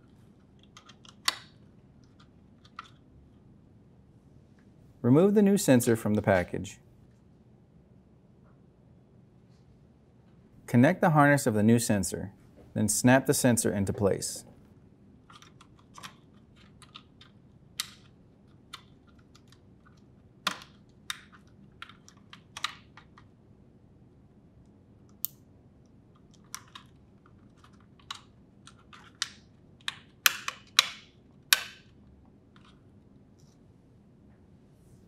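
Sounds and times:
plastic clicks and rattles: 0.4 - 3.0, 15.2 - 23.3, 26.2 - 32.8.

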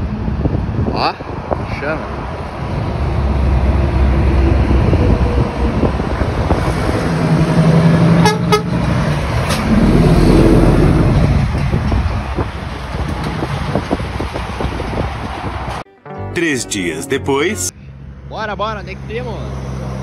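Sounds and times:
truck engine: 2.1 - 20.0
truck horn blasts: 8.2 - 8.8.

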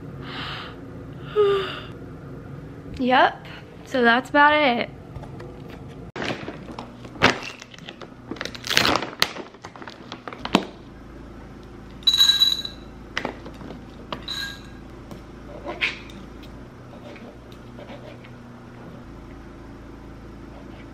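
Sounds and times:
air conditioner humming: 0.0 - 20.9.

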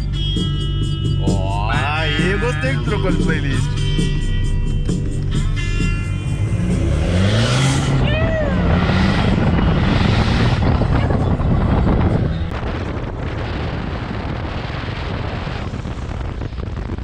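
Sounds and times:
truck engine and tyres rumbling: 0.0 - 17.0
wind buffeting microphone: 3.8 - 17.0.

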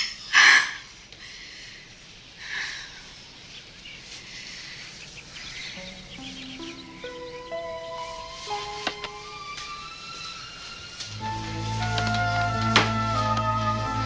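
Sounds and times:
faint background hiss: 0.0 - 14.0
light chirps: 2.1 - 11.0
soft held music notes: 3.1 - 14.0.

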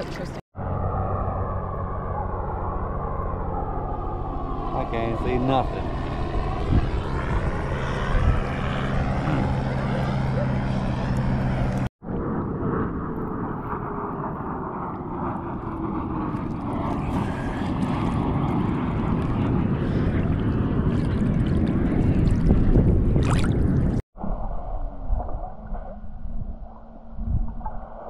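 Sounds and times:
wind: 0.0 - 28.0
water rushing: 20.2 - 24.0.

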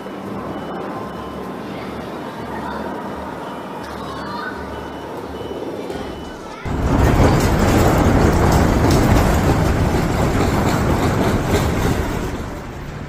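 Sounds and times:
clattering and rattling: 6.7 - 13.0
deep continuous rumble: 6.7 - 13.0.

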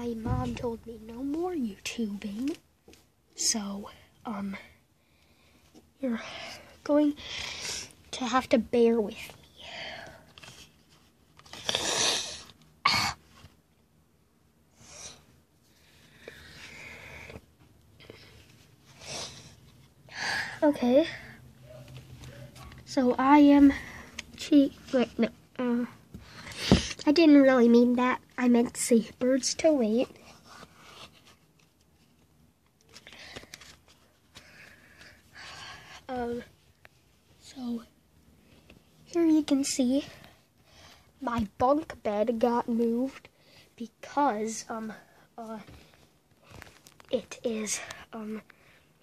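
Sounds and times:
person breathing close to microphone: 14.7 - 17.4.

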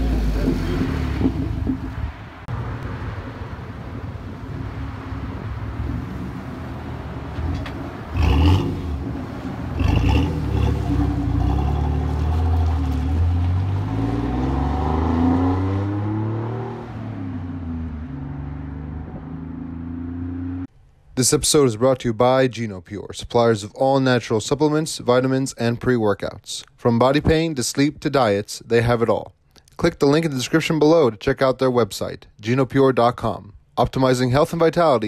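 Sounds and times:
truck exhaust rumbling and revving: 0.0 - 20.7.

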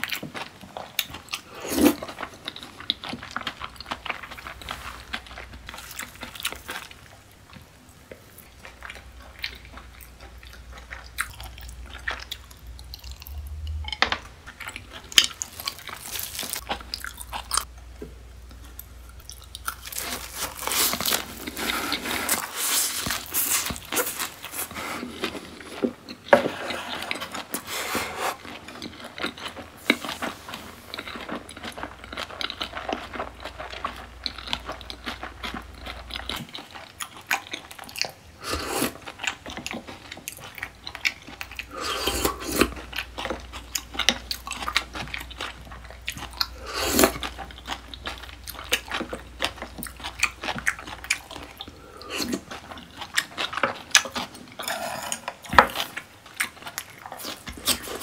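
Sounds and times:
chewing: 0.0 - 17.7, 18.4 - 58.0
biting food: 14.7 - 17.7.

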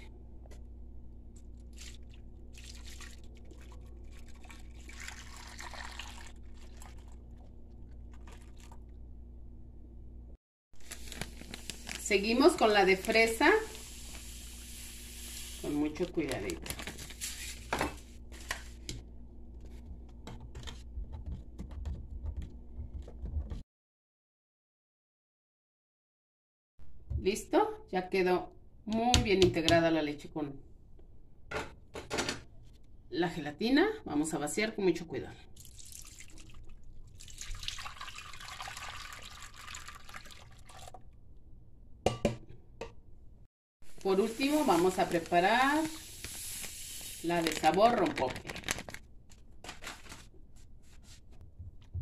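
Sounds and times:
liquid pouring into a dish: 1.8 - 7.5, 35.6 - 41.0.

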